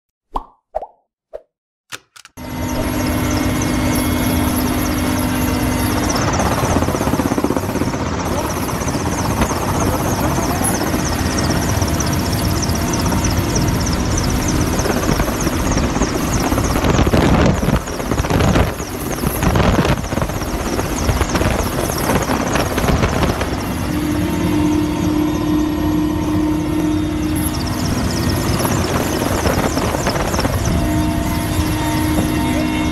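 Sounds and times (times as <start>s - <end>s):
helicopter rotor and engine noise: 1.9s - 32.9s
rushing wind: 2.8s - 32.9s.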